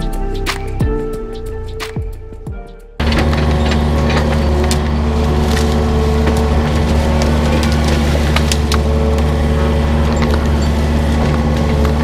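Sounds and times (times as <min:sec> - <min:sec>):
wood knocking and cracking: 0:03.0 - 0:09.4
excavator diesel engine running: 0:03.0 - 0:12.0
hydraulic whine: 0:03.0 - 0:12.0.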